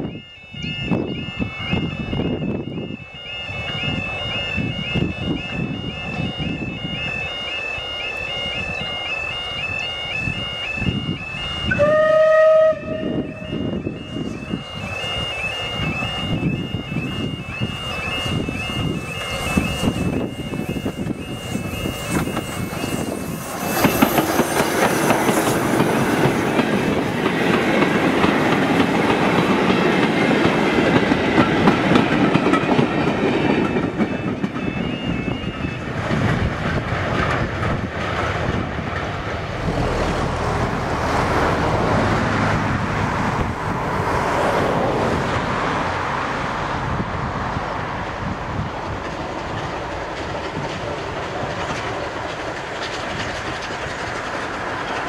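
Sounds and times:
two-tone alarm beeping: 0.0 - 37.9
steam train rolling past: 0.0 - 55.0
wagon wheels clattering over rail joints: 48.8 - 55.0.

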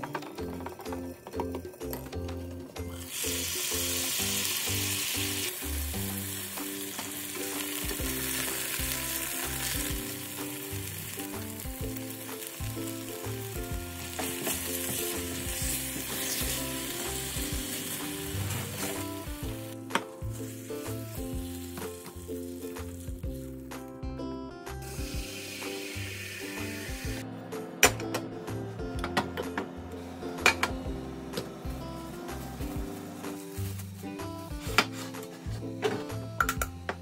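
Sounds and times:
background music: 0.0 - 37.0
chicken sizzling in oil: 3.0 - 23.7, 24.8 - 27.2.

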